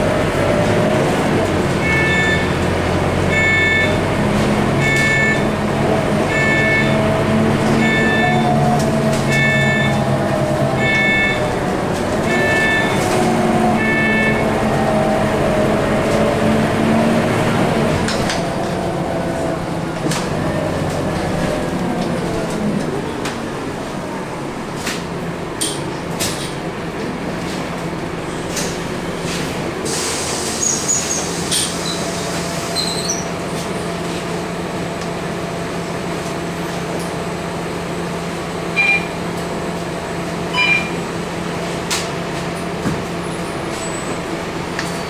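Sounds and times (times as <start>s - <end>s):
diesel bus engine drone: 0.0s - 45.0s
road and tyre noise: 0.0s - 45.0s.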